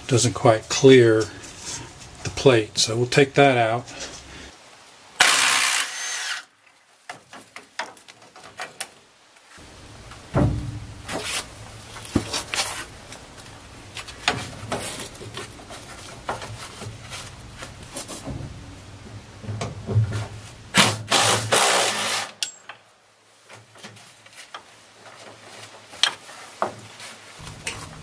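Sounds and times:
cordless drill running: 5.2s - 6.4s
low hum: 27.4s - 28.0s.

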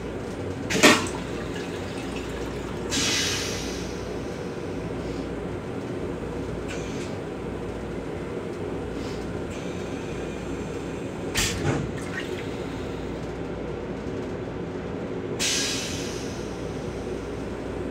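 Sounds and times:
train rumble: 0.0s - 17.9s
toilet flushing: 0.7s - 4.1s
hiss: 2.9s - 4.0s, 15.4s - 16.6s.

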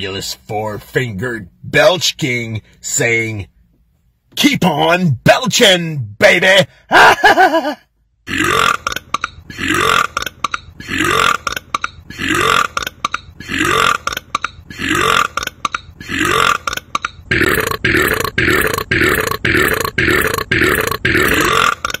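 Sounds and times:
man belching: 8.2s - 22.0s.

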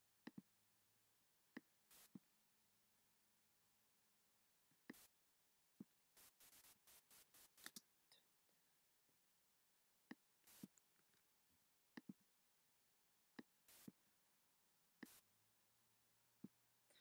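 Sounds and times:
bursts of hiss: 1.9s - 2.2s, 6.2s - 7.8s, 10.5s - 10.7s, 13.7s - 14.0s.

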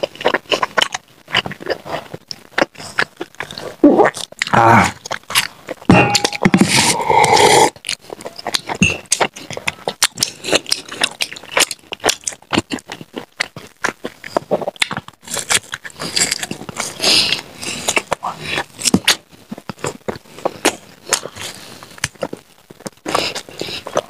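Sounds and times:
crunching fried snacks: 7.7s - 24.0s.

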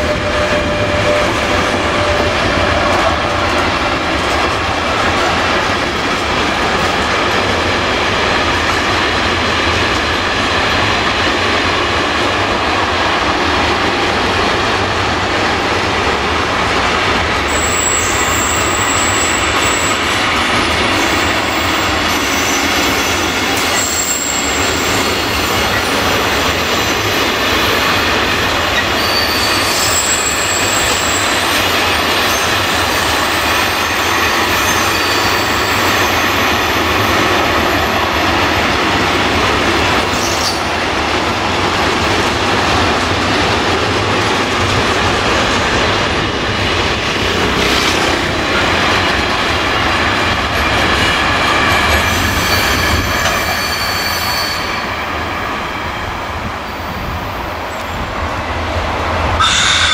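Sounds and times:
train wheels rumbling on rail: 0.0s - 59.9s
high wheel squeal: 17.5s - 20.1s, 20.9s - 26.0s, 28.8s - 32.6s, 33.8s - 37.9s, 52.0s - 55.3s, 59.4s - 59.9s.

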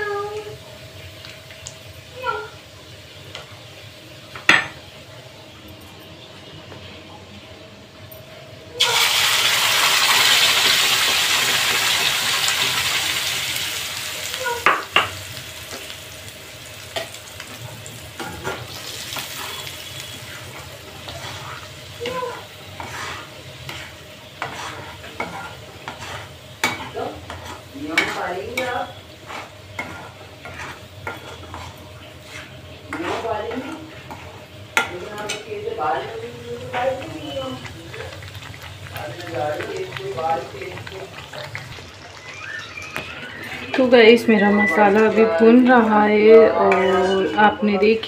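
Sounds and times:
paste sizzling in hot oil: 8.8s - 43.0s
metal spatula scraping a pan: 18.2s - 35.5s.

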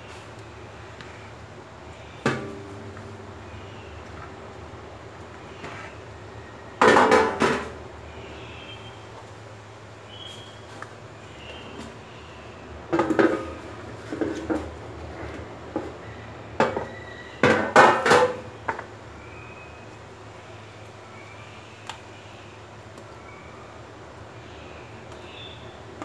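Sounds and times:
metal dishes clattering: 6.8s - 7.7s.

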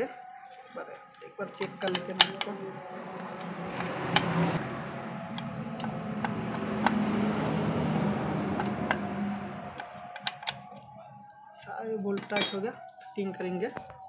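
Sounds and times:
steady low hum: 2.6s - 9.8s.

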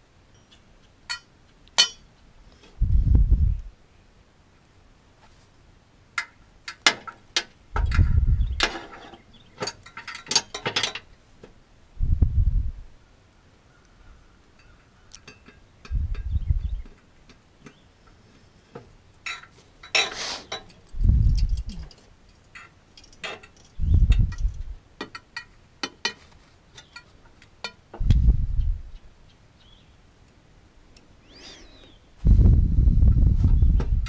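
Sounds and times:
dull low thumps: 2.8s - 3.7s, 7.8s - 8.7s, 12.0s - 13.0s, 15.9s - 16.9s, 21.0s - 21.8s, 23.8s - 24.8s, 28.0s - 29.0s, 32.2s - 34.0s
brief hiss: 20.0s - 20.6s.

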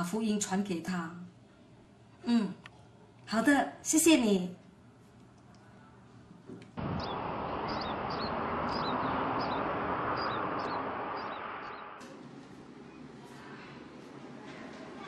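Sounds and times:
birds chirping: 6.8s - 12.0s
steady rushing noise: 6.8s - 12.8s.

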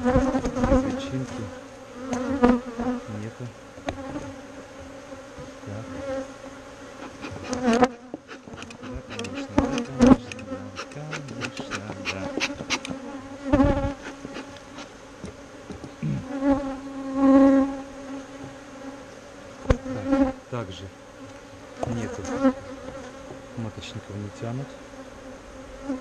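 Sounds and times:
bees buzzing: 0.0s - 26.0s
hive frames clicking and knocking: 7.0s - 16.0s.

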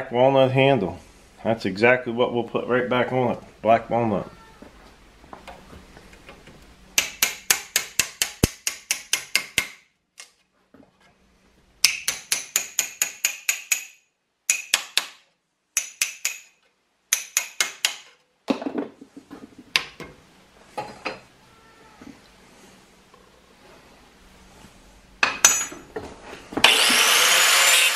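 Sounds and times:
hammer striking metal cleaver: 7.0s - 9.8s, 11.8s - 15.2s, 15.8s - 18.1s, 25.2s - 25.7s.

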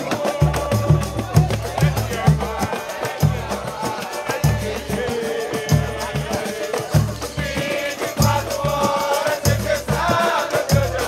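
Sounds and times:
deep hand drum beating: 0.0s - 7.6s
rattling percussion: 0.0s - 11.0s
voices singing together: 0.0s - 11.0s.

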